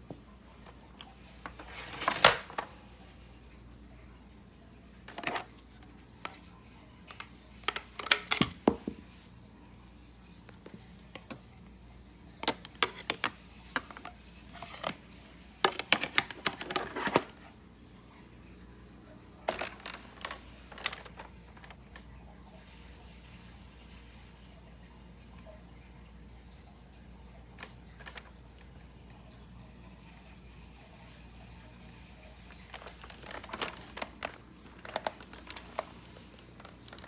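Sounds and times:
plastic clicks and taps: 7.1s - 9.0s, 12.4s - 14.2s, 15.6s - 17.3s.

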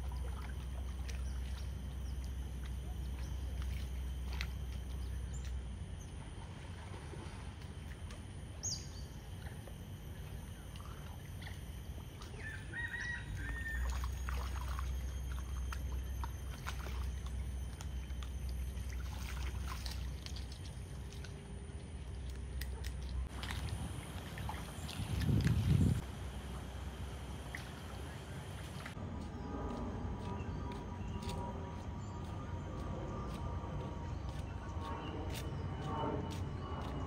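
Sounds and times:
water splashing and lapping: 0.0s - 37.0s
low rumble: 13.2s - 37.0s.

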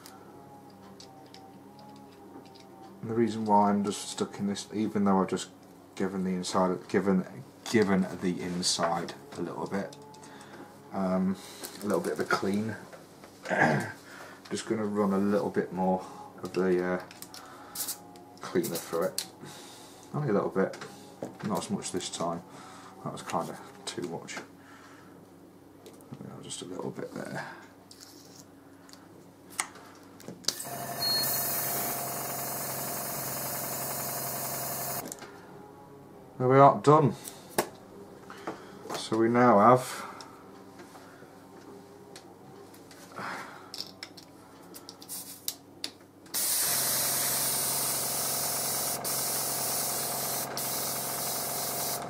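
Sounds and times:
air hissing through airbrush: 17.8s - 18.0s, 46.4s - 52.0s
airbrush compressor motor hum: 30.5s - 35.0s, 46.4s - 52.0s.

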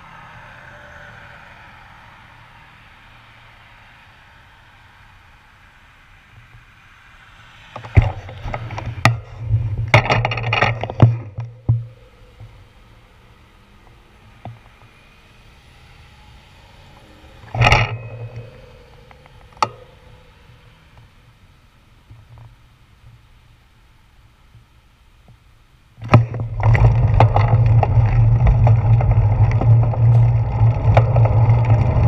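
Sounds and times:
faint traffic hum: 0.0s - 32.0s
knocks and rattles on camera: 7.8s - 12.6s, 26.0s - 32.0s.

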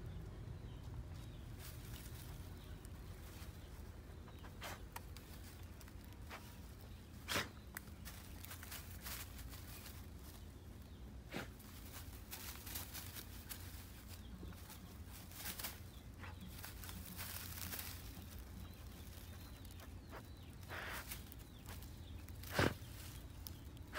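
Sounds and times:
low steady rumble: 0.0s - 7.2s
dry grass rustling: 0.0s - 23.9s.

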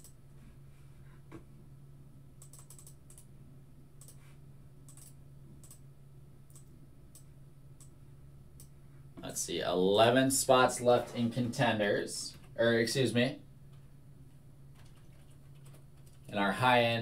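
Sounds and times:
low steady hum: 0.0s - 17.0s
typing on computer keyboard: 2.4s - 3.3s, 4.9s - 5.8s, 14.8s - 16.3s.

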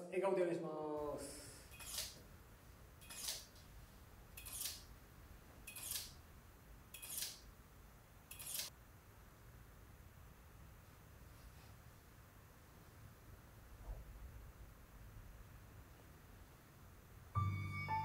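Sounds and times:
camera shutter clicks: 1.8s - 2.2s, 3.0s - 3.5s, 7.0s - 7.4s, 8.3s - 8.7s.

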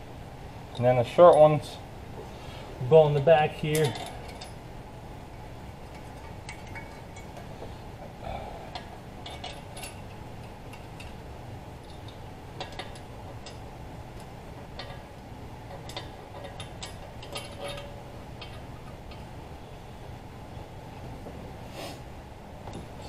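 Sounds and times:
low background hum: 0.0s - 23.0s
metal bolts clicking: 3.2s - 4.6s, 5.3s - 7.5s, 8.7s - 11.2s, 11.8s - 19.4s.

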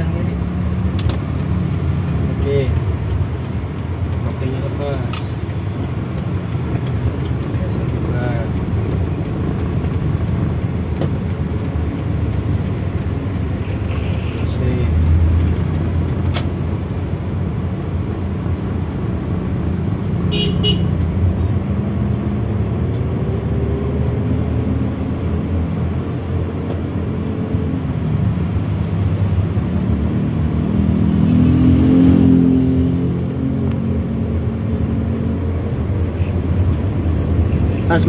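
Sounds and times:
car engine running: 0.0s - 14.0s.

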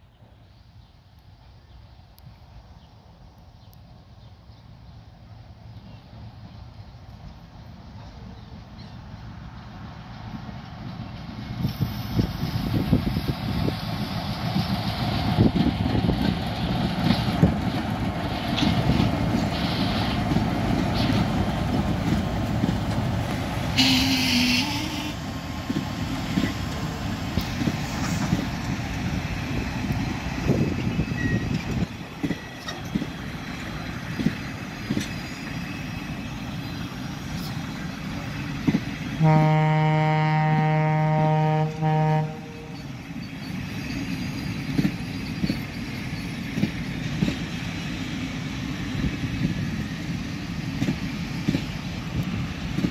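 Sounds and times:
diesel locomotives rumbling past: 0.0s - 52.9s
train horn blast: 23.8s - 25.2s, 39.2s - 42.8s.

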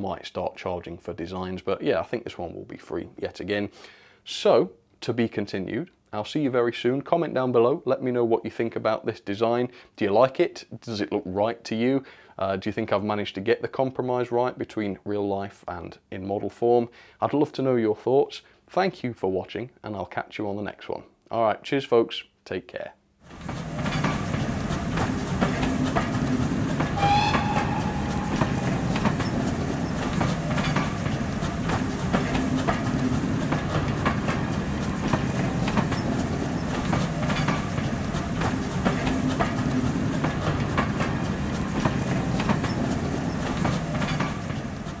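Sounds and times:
train rumbling past: 23.3s - 45.0s
wheels clicking over rail joints: 23.3s - 45.0s
brief high-pitched tone: 27.0s - 30.0s.

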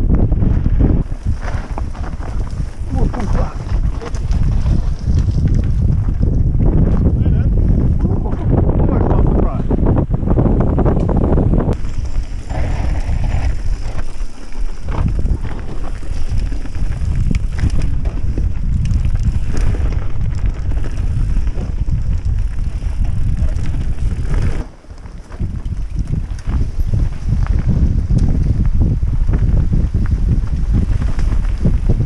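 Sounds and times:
wind buffeting microphone: 0.0s - 32.0s
tyre rumble on dirt: 0.2s - 8.6s, 11.8s - 32.0s
bike rattling clicks and knocks: 11.8s - 32.0s.

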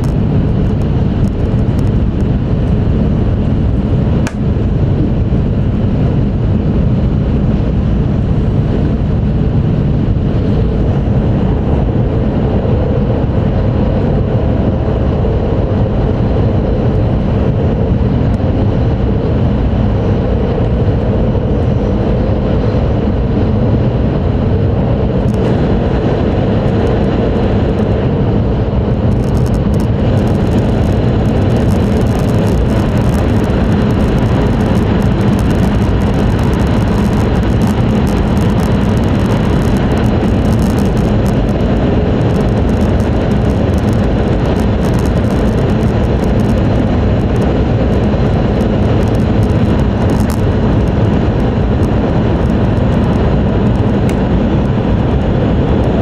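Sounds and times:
air rushing along train: 0.0s - 56.0s
train wheels rumbling on rail: 0.0s - 56.0s
brief sharp click: 4.2s - 4.4s.

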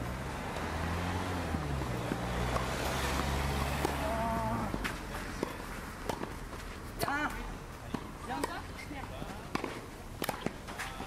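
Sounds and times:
engine humming: 0.0s - 7.0s.

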